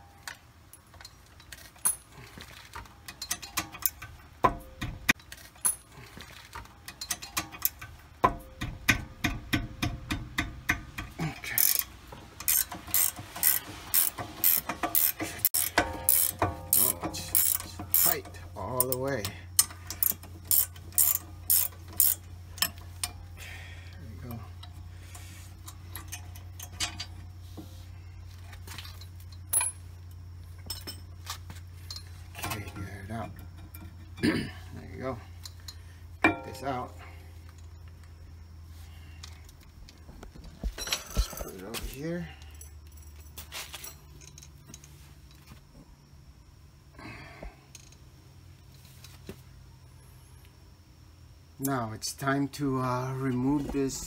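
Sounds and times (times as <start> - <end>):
metal tools clinking: 0.0 - 8.7, 10.1 - 23.4, 24.2 - 27.3, 28.3 - 38.0, 40.6 - 45.5.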